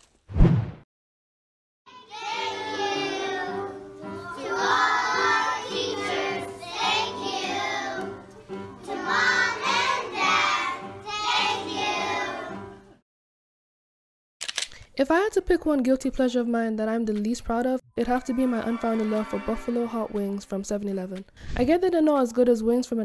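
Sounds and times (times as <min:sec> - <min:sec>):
backing music: 0:01.9 - 0:13.0, 0:18.0 - 0:21.3.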